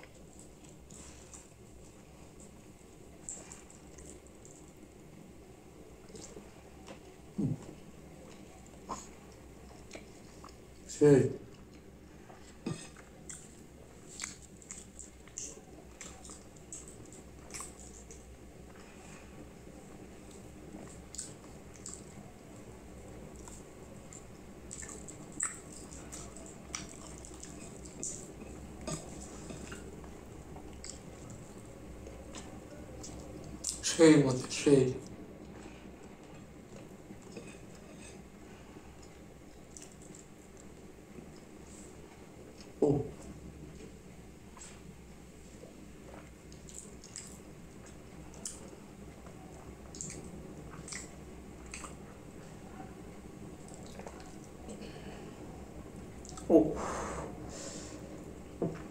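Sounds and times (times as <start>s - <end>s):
wet chewing: 0.0s - 5.0s, 6.0s - 10.9s, 11.5s - 19.0s, 20.2s - 22.3s, 23.3s - 33.8s, 38.9s - 41.6s, 45.6s - 52.3s, 53.5s - 55.0s, 56.1s - 56.5s
mouth smacks and clicks: 49.9s - 52.0s.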